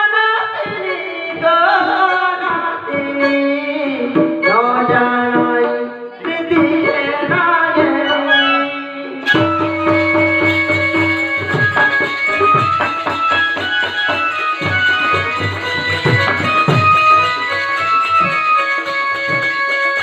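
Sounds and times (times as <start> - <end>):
person singing into microphone: 0.0 - 9.6
hand drum: 0.5 - 8.3, 9.2 - 20.0
held instrumental tones: 2.0 - 20.0.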